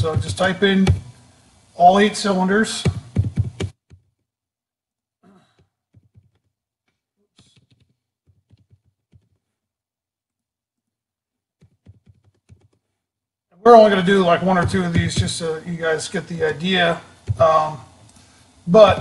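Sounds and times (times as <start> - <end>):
keyboard typing: 2.8 - 4.2, 5.9 - 6.6, 7.4 - 9.5, 11.6 - 12.9
soft breath: 18.1 - 18.6.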